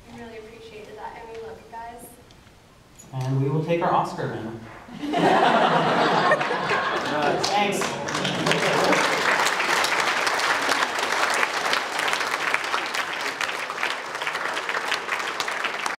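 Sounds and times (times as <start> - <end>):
audience applauding: 5.0 - 16.0.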